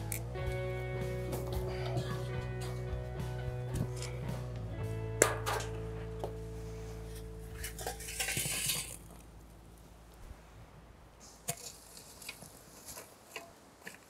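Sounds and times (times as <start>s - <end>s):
coals and metal shovel clinking: 1.2s - 4.3s, 5.2s - 9.8s, 11.2s - 14.0s
charcoal rattling pour: 7.6s - 9.2s.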